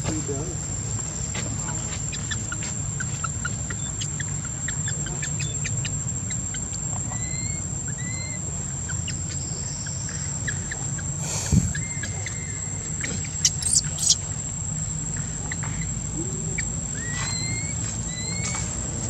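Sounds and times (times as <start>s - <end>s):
high insect drone: 0.0s - 19.0s
low steady hum: 0.0s - 19.0s
short whistled calls: 7.1s - 14.2s, 16.6s - 18.6s.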